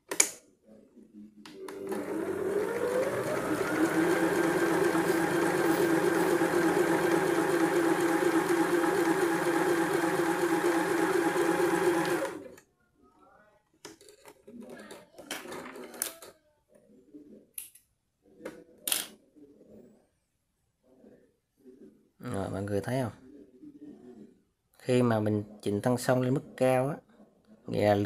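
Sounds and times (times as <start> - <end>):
sewing machine stitching: 1.7 - 12.6.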